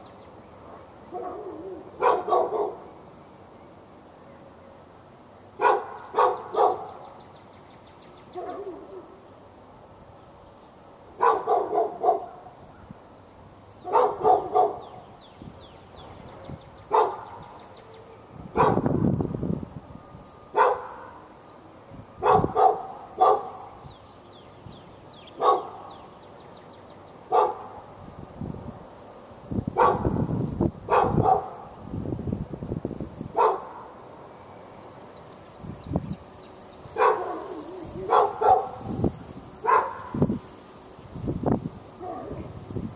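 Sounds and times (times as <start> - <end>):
dog barking: 1.1 - 2.9, 5.6 - 7.0, 8.4 - 9.1, 11.2 - 12.5, 13.8 - 14.9, 16.9 - 17.4, 18.6 - 18.9, 20.6 - 21.2, 22.2 - 23.6, 25.4 - 25.9, 27.3 - 27.7, 29.8 - 30.2, 30.9 - 31.7, 33.4 - 33.9, 37.0 - 38.9, 39.6 - 40.2, 42.0 - 42.4.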